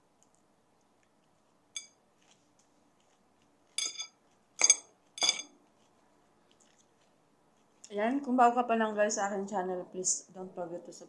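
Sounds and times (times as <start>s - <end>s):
metal fork clinking on bowl: 1.8s - 2.0s, 3.8s - 5.5s.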